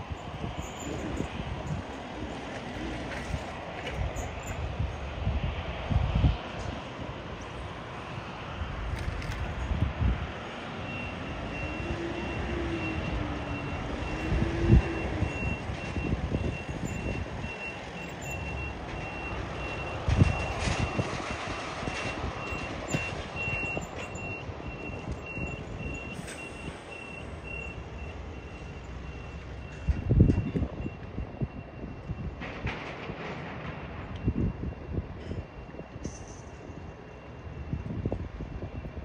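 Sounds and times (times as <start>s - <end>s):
reversing alarm beeping: 10.8s - 32.5s, 34.0s - 39.0s
wind thumps on microphone: 20.0s - 23.6s, 29.8s - 35.2s.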